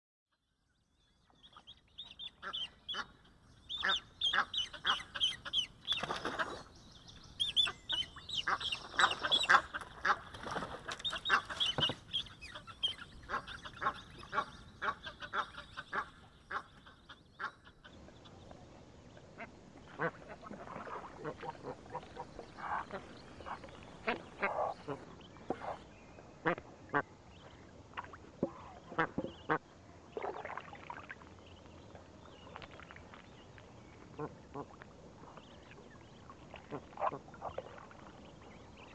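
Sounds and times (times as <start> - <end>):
geese honking: 2.2 - 5.7.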